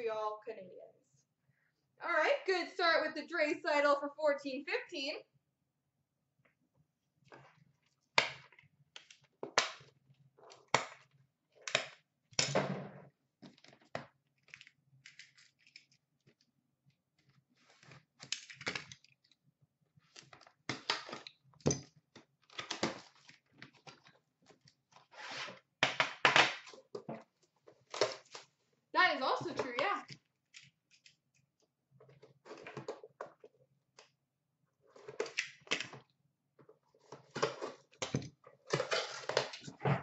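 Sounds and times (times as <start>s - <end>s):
cardboard and wrapper crinkling: 13.5s - 16.5s, 17.1s - 21.4s, 22.1s - 25.7s, 38.6s - 39.8s.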